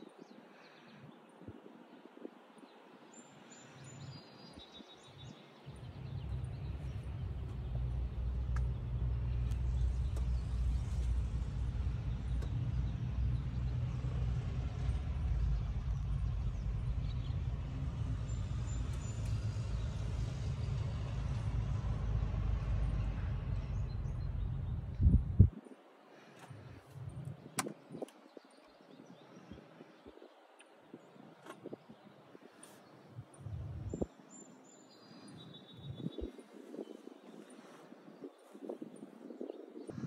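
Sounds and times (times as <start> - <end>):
car engine idling: 5.7 - 13.0.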